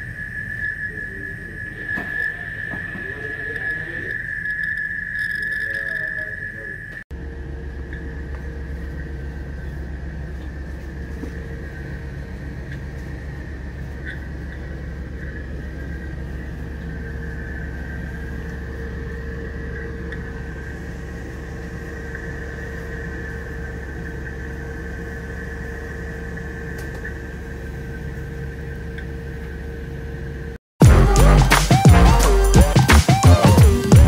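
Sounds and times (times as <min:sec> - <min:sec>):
machinery hum: 0:00.0 - 0:34.0
music: 0:30.8 - 0:34.0.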